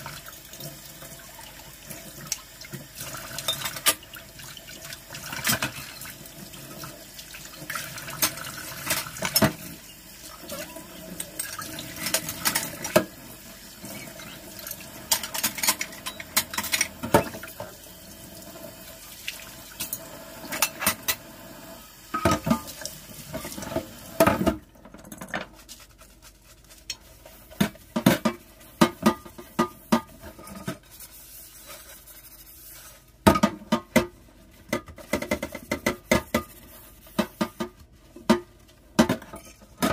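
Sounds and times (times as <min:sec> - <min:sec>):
dishes clinking against sink: 0:03.3 - 0:04.1, 0:07.6 - 0:09.8, 0:10.5 - 0:13.2, 0:13.8 - 0:17.7, 0:19.8 - 0:21.2, 0:22.1 - 0:25.5
sponge scrubbing frying pan: 0:25.5 - 0:33.2.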